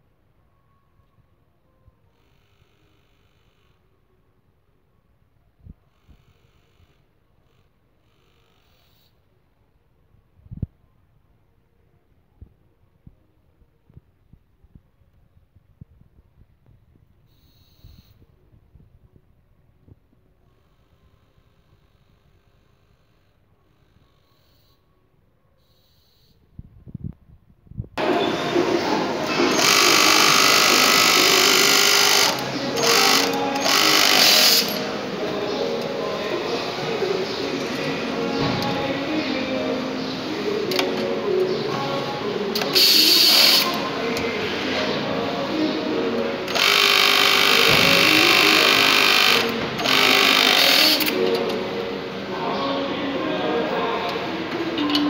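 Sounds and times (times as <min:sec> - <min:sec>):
factory machine noise: 0:28.0 - 0:55.0
sewing machine stitching: 0:29.3 - 0:34.8, 0:46.5 - 0:51.2.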